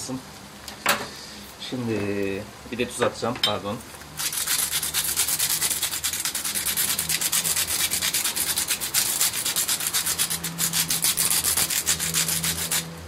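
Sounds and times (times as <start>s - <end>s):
salt mill grinding: 4.2s - 12.9s.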